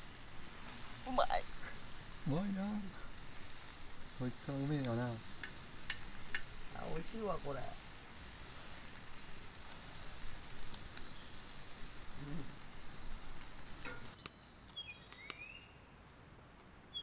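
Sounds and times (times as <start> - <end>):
food sizzling in a frying pan: 0.0 - 14.2
bird calling: 12.1 - 15.7.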